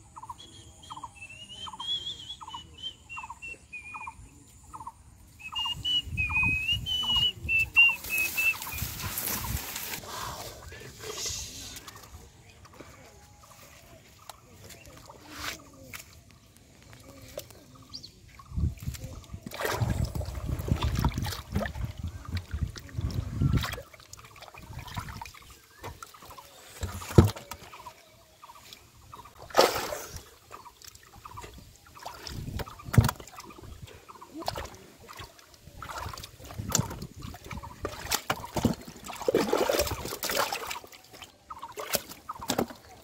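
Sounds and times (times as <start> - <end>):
hands sloshing in muddy water: 18.6 - 43.0
slaps and splashes in water: 18.8 - 27.7, 29.3 - 33.7, 34.4 - 43.0.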